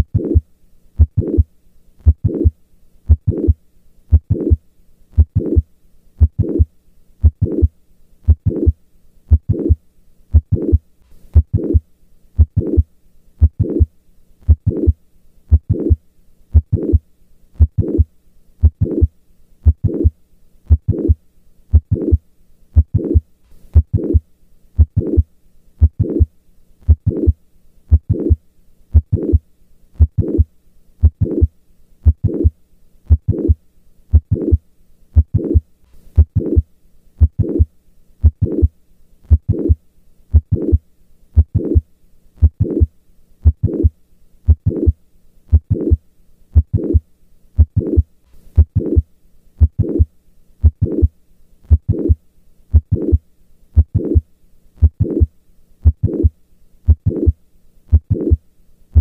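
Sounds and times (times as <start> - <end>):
heartbeat with murmur: 1.0 - 2.5, 3.1 - 4.6, 5.2 - 5.6, 6.2 - 11.8, 12.4 - 13.9, 14.5 - 17.0, 17.6 - 20.1, 20.7 - 22.2, 22.8 - 23.2, 23.8 - 24.2, 24.8 - 26.3, 26.9 - 29.4, 30.0 - 32.5, 33.1 - 34.6, 35.2 - 35.6, 36.2 - 36.6, 37.2 - 38.7, 39.3 - 40.8, 41.4 - 41.8, 42.4 - 43.9, 44.5 - 46.0, 46.6 - 47.0, 47.6 - 51.1, 51.7 - 53.2, 53.8 - 54.2, 54.8 - 56.3, 56.9 - 58.4.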